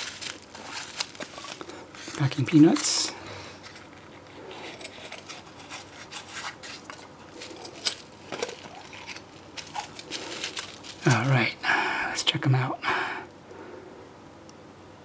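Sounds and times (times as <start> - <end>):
foam packing peanuts rubbing: 0.0 - 11.4.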